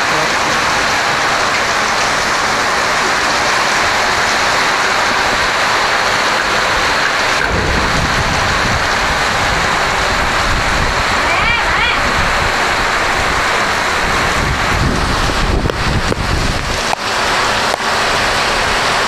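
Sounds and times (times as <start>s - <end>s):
heavy rain hissing: 0.0s - 19.0s
deep low rumble: 7.4s - 11.3s, 12.0s - 16.8s.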